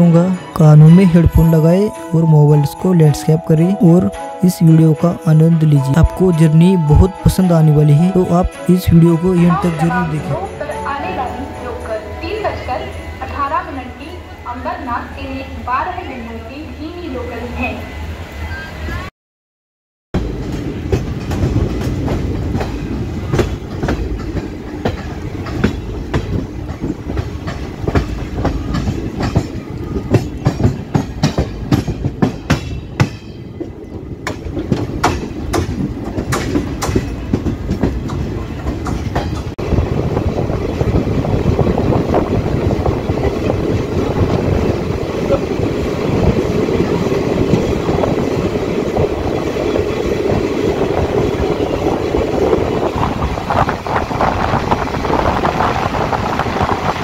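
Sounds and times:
train wheels clattering over rails: 0:20.2 - 0:57.0.

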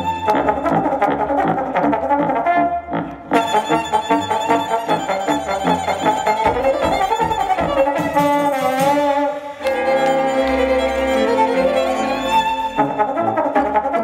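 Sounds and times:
solo violin: 0:00.0 - 0:00.8, 0:03.4 - 0:13.4
trombone: 0:00.0 - 0:10.8, 0:11.6 - 0:14.0
string orchestra: 0:00.0 - 0:14.0.

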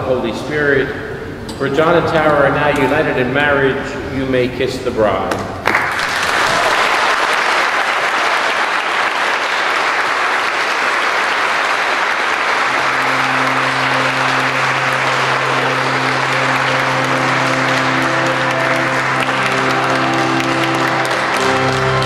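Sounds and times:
congregation applauding: 0:05.6 - 0:22.0
music with held low notes: 0:11.7 - 0:22.0.

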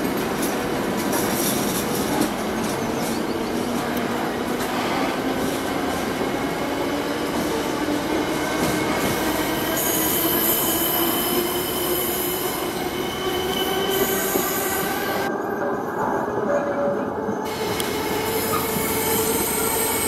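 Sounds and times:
train wheels rumbling on rail: 0:00.0 - 0:15.3.

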